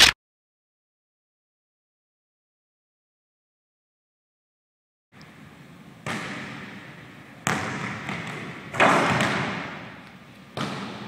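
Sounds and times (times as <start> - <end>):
basketball bouncing on hardwood floor: 7.4 - 9.9, 10.6 - 11.0.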